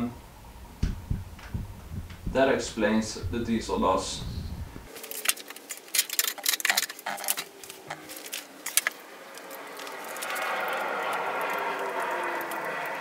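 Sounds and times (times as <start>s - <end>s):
metal hand tools clinking: 4.9s - 10.8s.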